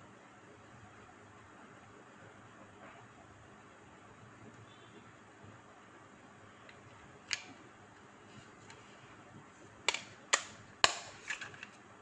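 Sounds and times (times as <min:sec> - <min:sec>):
plastic box clicks and snaps: 0:09.9 - 0:11.7.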